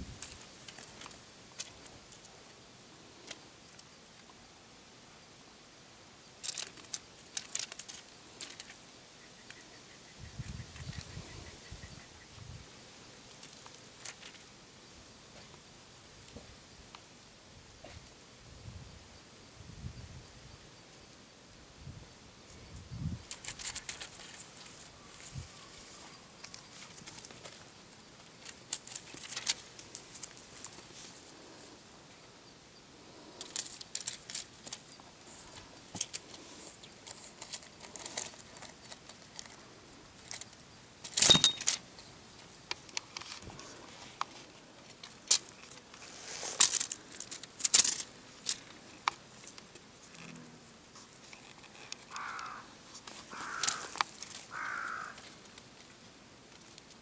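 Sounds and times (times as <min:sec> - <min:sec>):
rustling on dry leaves: 0:00.0 - 0:03.8, 0:06.4 - 0:09.6, 0:13.2 - 0:14.6, 0:23.2 - 0:32.0, 0:33.0 - 0:57.0.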